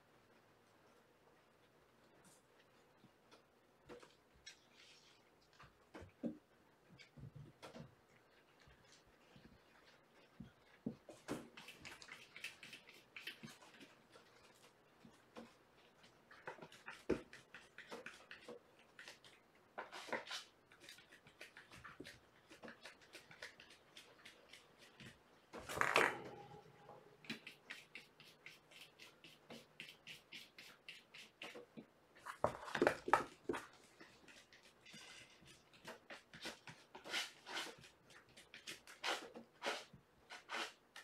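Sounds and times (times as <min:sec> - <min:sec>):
kittens playing clicks and taps: 0:02.5 - 0:26.5.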